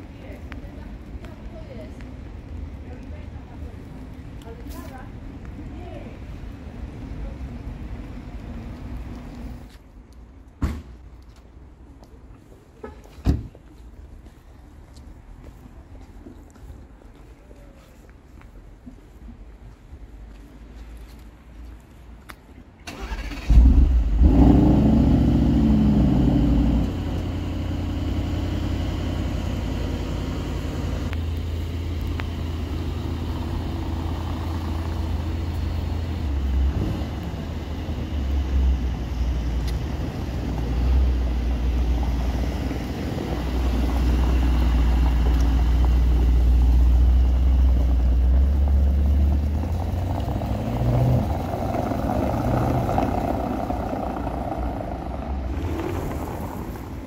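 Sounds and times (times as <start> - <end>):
car engine idling and revving: 22.9 - 57.0.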